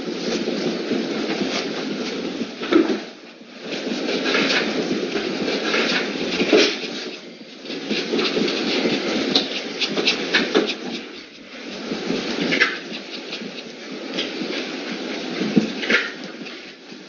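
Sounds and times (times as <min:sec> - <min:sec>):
paintbrush scrubbing paint: 0:07.8 - 0:14.7.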